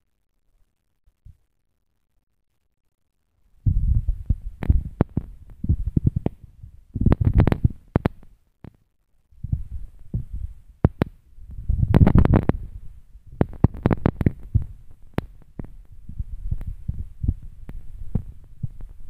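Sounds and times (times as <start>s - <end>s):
microphone handling thumps: 3.6s - 8.2s, 9.4s - 19.0s.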